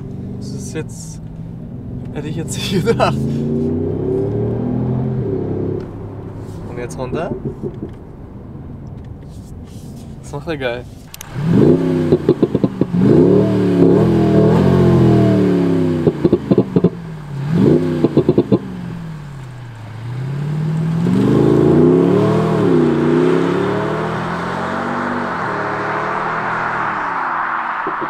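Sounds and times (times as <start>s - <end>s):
car engine accelerating: 0.0s - 9.3s, 10.1s - 28.0s
exhaust crackling pops: 5.8s - 10.4s, 11.0s - 13.0s, 16.0s - 17.0s, 17.8s - 18.7s, 27.8s - 28.0s.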